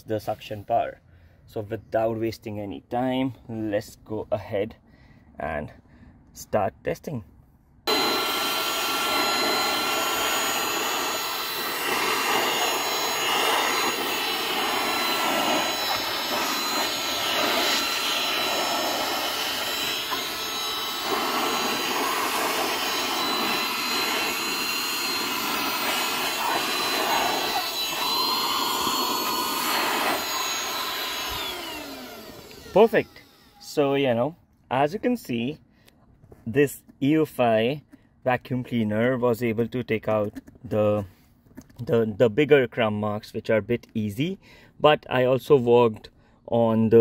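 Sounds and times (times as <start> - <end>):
handheld vacuum cleaner running: 7.9 - 33.8.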